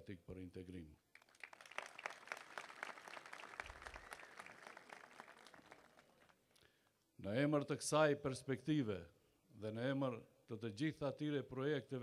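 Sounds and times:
crowd applauding: 1.2s - 6.4s.

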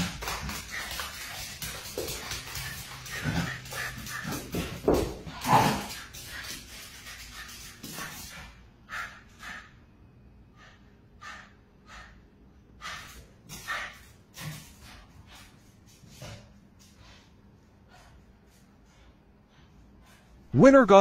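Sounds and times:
animals huffing and snorting: 0.0s - 6.1s.

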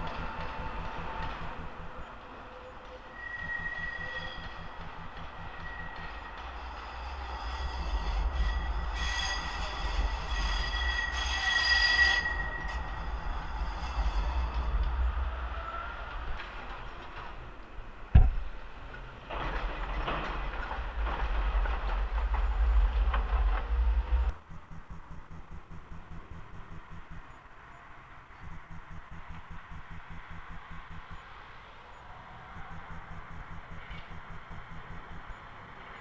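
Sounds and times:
tram wheels squealing on rails: 0.0s - 17.8s
tram rolling by: 0.0s - 24.5s.

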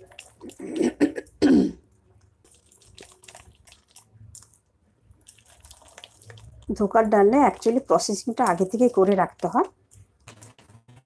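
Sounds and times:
hand squishing thick paste: 1.9s - 8.9s.

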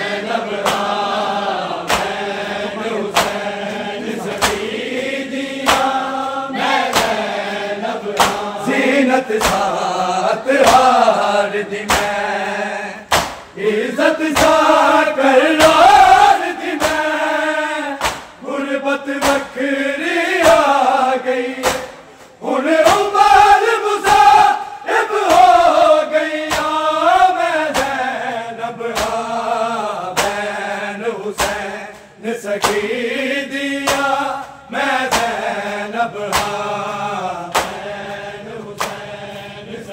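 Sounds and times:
men chanting a lament in chorus: 0.0s - 39.9s
hand slaps on bare chests: 0.6s - 1.2s, 1.8s - 2.5s, 3.1s - 4.9s, 5.6s - 6.1s, 6.8s - 9.9s, 10.6s - 11.1s, 11.8s - 12.4s, 13.1s - 13.6s, 14.2s - 14.9s, 15.5s - 18.5s, 19.1s - 19.7s, 20.3s - 20.8s, 21.5s - 25.8s, 26.4s - 28.1s, 28.9s - 29.5s, 30.1s - 33.0s, 33.8s - 38.0s, 38.8s - 39.1s.

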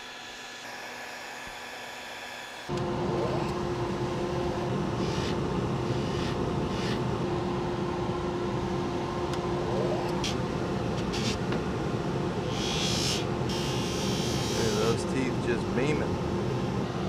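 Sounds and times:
polishing motor humming: 0.0s - 7.7s, 12.4s - 15.4s.

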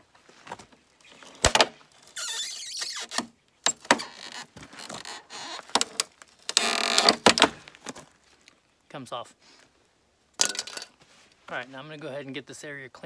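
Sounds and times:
plastic squealing and scraping: 1.0s - 7.5s.

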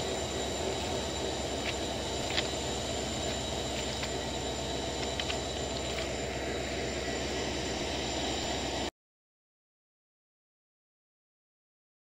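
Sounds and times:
mechanical hum with hiss: 0.0s - 8.9s.

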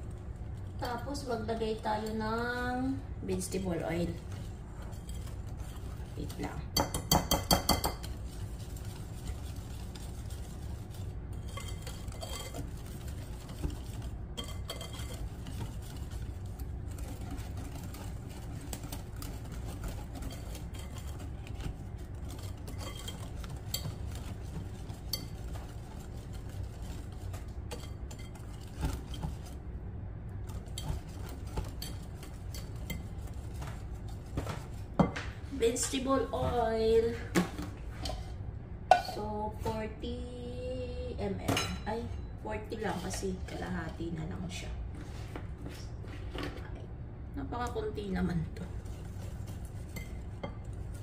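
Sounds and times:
whisk beating batter in glass bowl: 0.0s - 29.7s, 30.4s - 36.7s, 48.4s - 51.0s
low steady hum: 0.0s - 51.0s.

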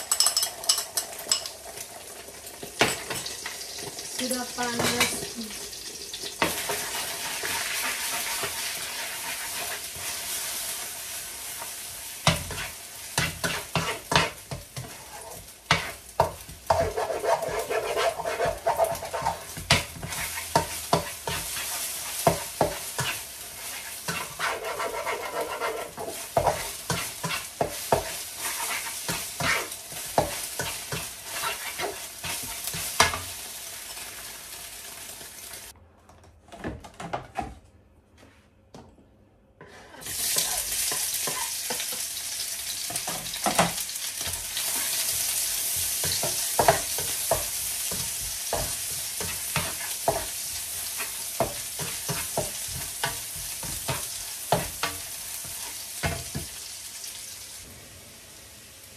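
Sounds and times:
eggs sizzling in oil: 0.0s - 35.8s, 39.9s - 58.9s
spatula tapping and scraping pan: 6.4s - 10.2s, 11.6s - 33.3s, 39.6s - 42.2s, 42.9s - 56.6s.

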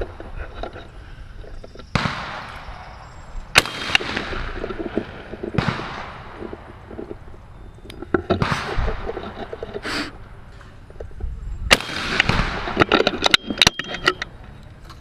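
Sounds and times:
shotgun shots echoing: 1.9s - 6.7s, 8.4s - 9.0s, 11.7s - 12.9s.

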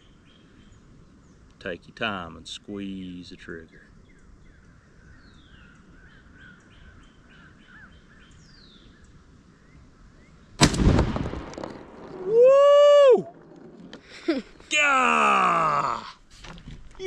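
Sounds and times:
birds chirping: 0.0s - 10.6s
shotgun shot: 10.6s - 12.1s.

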